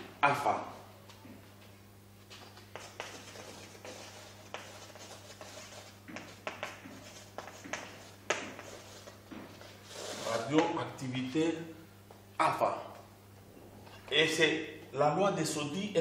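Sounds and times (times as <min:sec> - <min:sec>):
chalk scratching on blackboard: 0:02.4 - 0:10.5.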